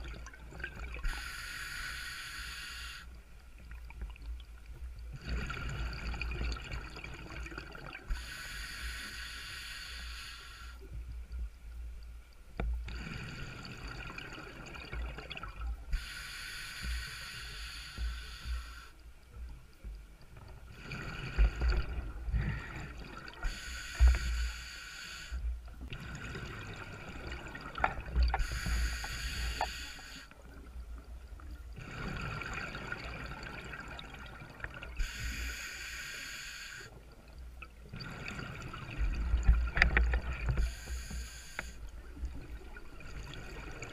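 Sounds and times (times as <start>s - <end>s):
low rumble of water: 0.0s - 36.0s, 36.8s - 43.9s
diver breathing through regulator: 1.0s - 3.2s, 8.1s - 10.9s, 15.9s - 19.0s, 20.8s - 26.8s, 28.3s - 30.4s, 35.0s - 37.0s, 40.5s - 41.9s.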